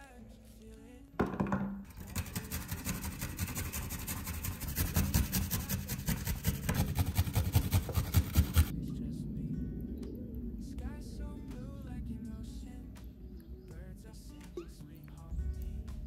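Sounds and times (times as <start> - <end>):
grater knocking on wooden board: 1.2 - 8.7
garlic rasping on a grater: 1.9 - 8.7.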